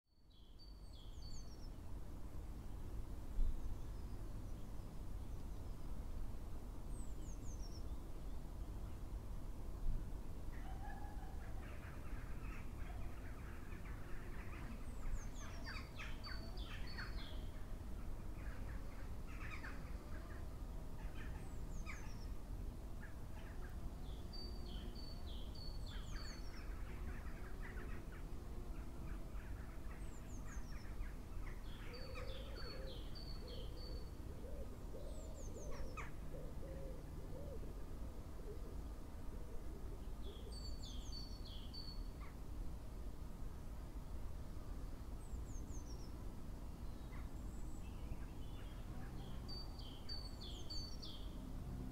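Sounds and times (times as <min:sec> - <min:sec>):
lower wavering bird calls: 0:10.5 - 0:20.4, 0:23.0 - 0:37.8.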